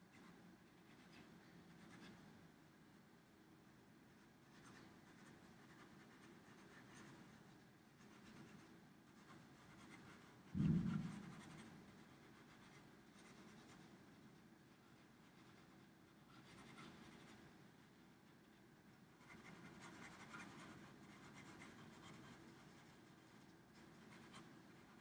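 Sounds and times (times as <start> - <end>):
marker scratching on paper: 4.4 - 7.4, 8.0 - 14.0, 14.9 - 17.4, 19.2 - 25.0.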